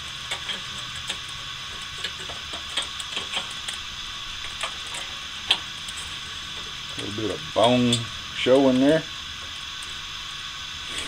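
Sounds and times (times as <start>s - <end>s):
steady hiss: 0.0s - 11.0s
metal tongs clicking on grate: 7.6s - 8.1s.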